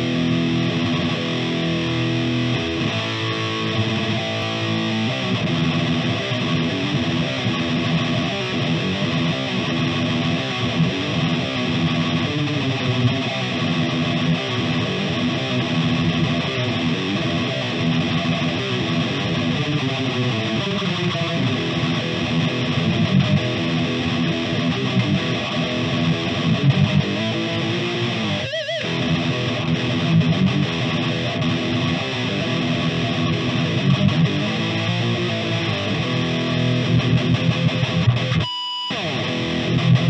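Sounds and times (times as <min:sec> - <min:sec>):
distorted electric guitar riffs: 0:00.0 - 0:40.0.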